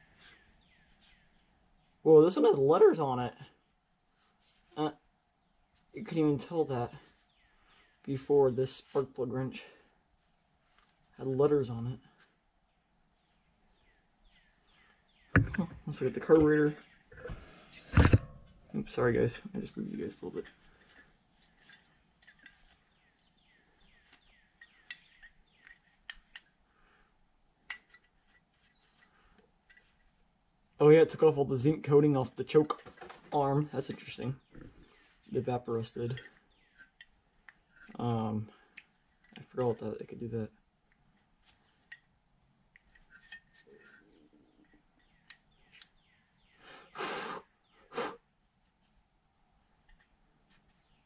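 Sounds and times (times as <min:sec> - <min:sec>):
light clicks and rustles: 0:10.2 - 0:11.5, 0:20.4 - 0:26.5.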